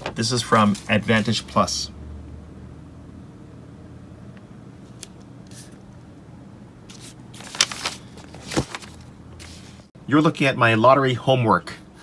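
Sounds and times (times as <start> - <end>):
paper rustling and crinkling: 0.0 - 1.4, 6.9 - 9.9
steady low hum: 0.0 - 12.0.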